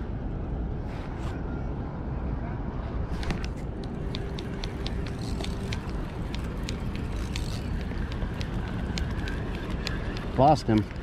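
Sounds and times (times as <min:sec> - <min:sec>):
wind buffeting microphone: 0:00.7 - 0:11.0
light sharp ticks: 0:03.2 - 0:11.0.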